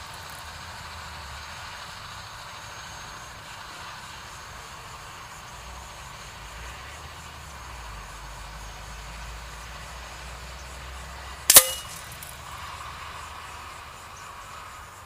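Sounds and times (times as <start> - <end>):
pellet striking paper target: 11.5 - 12.3.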